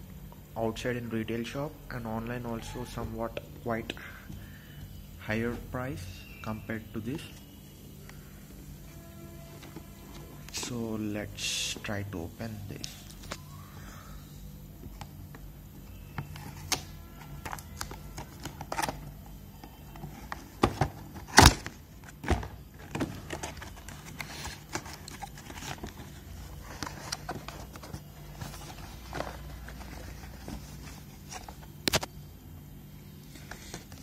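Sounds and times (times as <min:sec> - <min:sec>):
steady low hum: 0:00.0 - 0:34.0
cardboard and packaging rustling: 0:14.8 - 0:32.2, 0:33.1 - 0:34.0.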